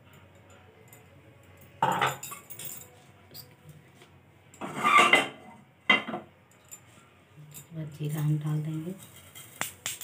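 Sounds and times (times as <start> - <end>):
spoon scraping a pan: 4.6 - 5.5.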